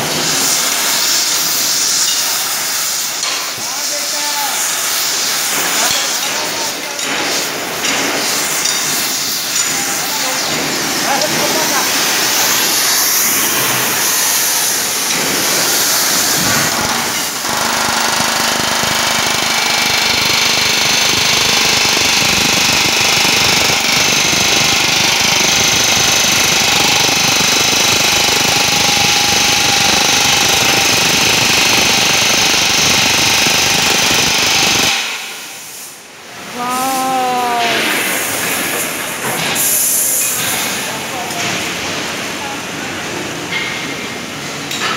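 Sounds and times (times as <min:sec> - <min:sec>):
pneumatic riveting hammer rattling: 0:12.0 - 0:35.7.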